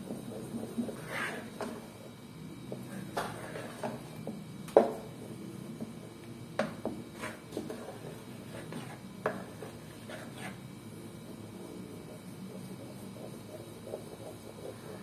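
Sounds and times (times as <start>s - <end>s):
wooden spoon scraping a pan: 0.1s - 1.9s, 7.1s - 10.6s
spoon stirring thick mixture: 2.7s - 4.4s, 6.6s - 15.0s.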